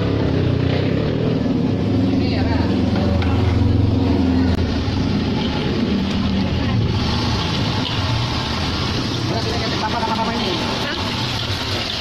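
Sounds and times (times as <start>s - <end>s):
egg sizzling in hot oil: 4.7s - 12.0s.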